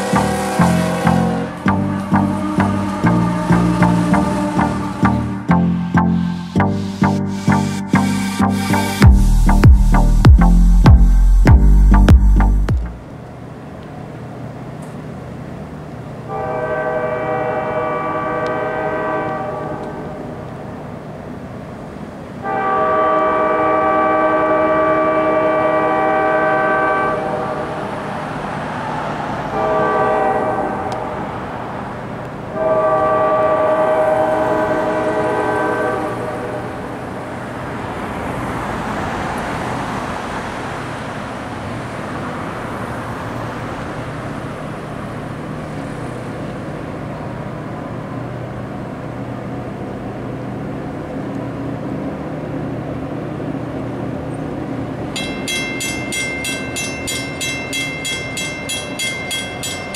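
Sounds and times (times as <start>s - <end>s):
train air horn blasts: 0.0s - 5.5s, 16.3s - 20.5s, 22.4s - 27.9s, 29.5s - 31.3s, 32.6s - 37.0s
train rumble: 0.0s - 6.7s, 9.0s - 59.9s
crossing bell ringing: 0.0s - 6.9s, 55.1s - 59.9s.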